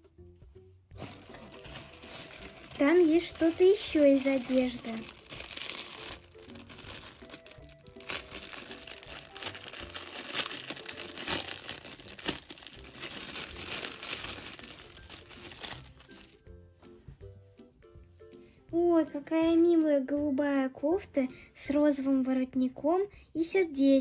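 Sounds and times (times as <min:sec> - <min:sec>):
soft background music: 0:00.0 - 0:24.0
cellophane crinkling: 0:01.0 - 0:16.4.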